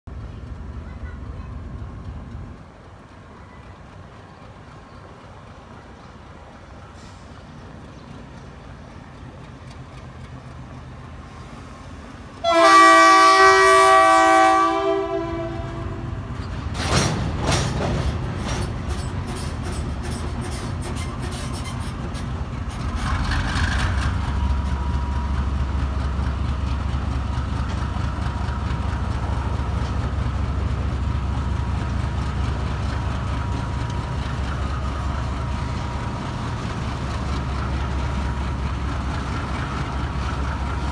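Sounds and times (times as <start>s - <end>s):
freight train rumble: 0.1s - 40.9s
wheels clicking over rail joints: 7.8s - 11.2s, 16.3s - 40.9s
locomotive horn chord: 12.4s - 16.2s.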